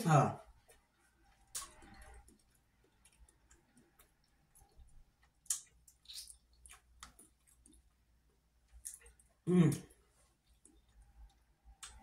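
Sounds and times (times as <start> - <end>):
mouth smacks chewing: 0.6 - 8.0, 8.7 - 12.0.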